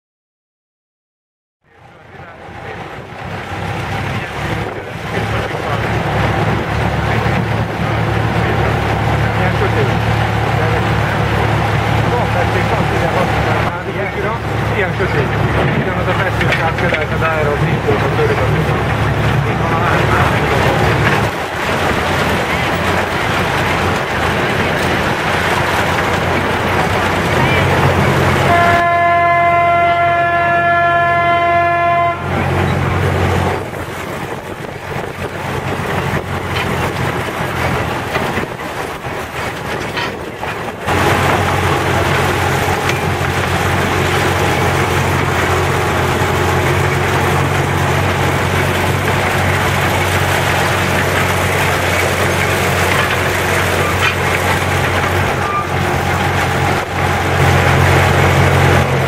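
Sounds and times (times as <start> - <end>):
small locomotive engine running: 1.7 - 59.0
locomotive horn toot: 27.3 - 32.7.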